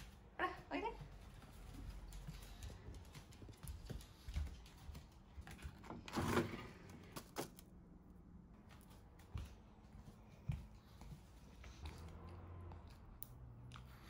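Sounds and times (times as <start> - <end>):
freezer ice drawer sliding open: 6.0 - 6.9.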